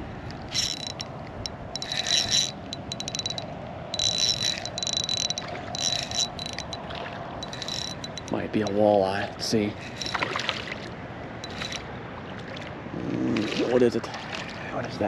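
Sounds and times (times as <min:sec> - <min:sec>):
steady hum: 0:00.0 - 0:08.4
fishing reel drag clicking: 0:00.3 - 0:06.8, 0:07.4 - 0:08.4, 0:09.8 - 0:10.3, 0:11.4 - 0:11.8.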